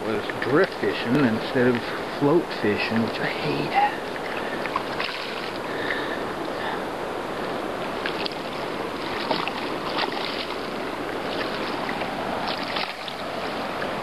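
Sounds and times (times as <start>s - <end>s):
river water running: 0.0s - 14.0s
fish splashing at surface: 4.2s - 6.0s, 9.0s - 13.3s.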